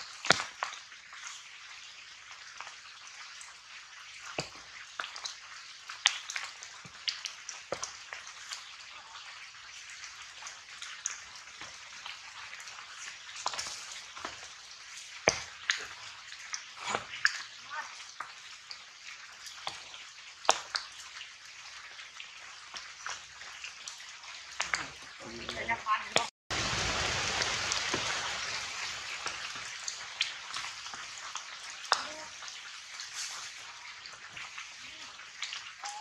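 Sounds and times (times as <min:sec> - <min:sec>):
light crackles and ticks: 0:00.0 - 0:26.3, 0:28.8 - 0:36.0
steady outdoor hiss: 0:26.5 - 0:35.1.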